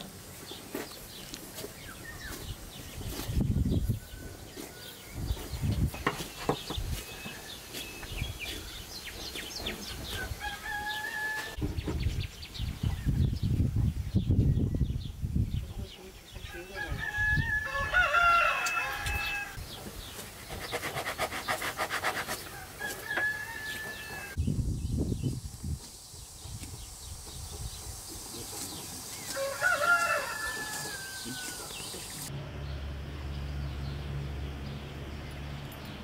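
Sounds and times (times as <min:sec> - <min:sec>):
rooster crowing: 0:10.2 - 0:11.6, 0:16.5 - 0:19.6, 0:22.5 - 0:24.4, 0:29.3 - 0:32.1.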